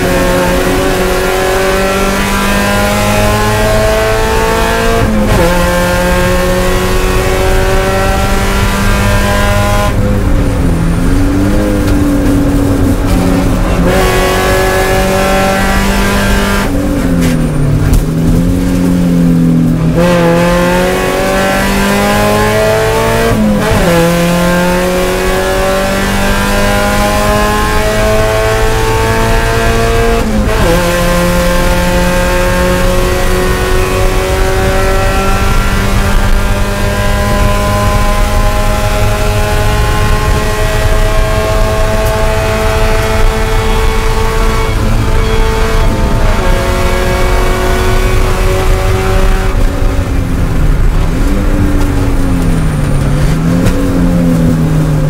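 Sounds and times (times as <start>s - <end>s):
race car engine revving: 0.0s - 55.0s.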